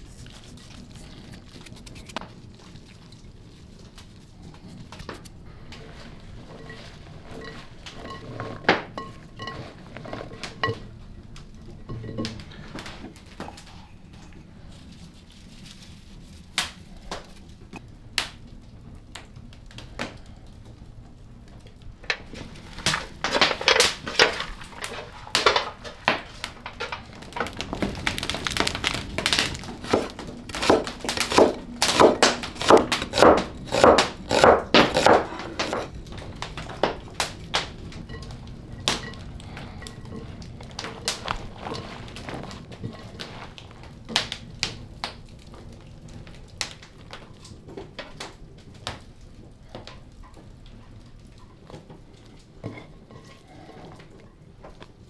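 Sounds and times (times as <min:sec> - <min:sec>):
loud crunching strokes: 0:26.1 - 0:36.0.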